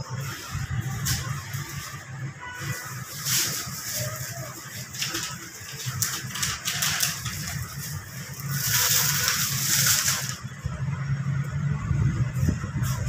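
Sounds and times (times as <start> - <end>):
plastic bag rustling and crinkling: 0.1 - 10.5.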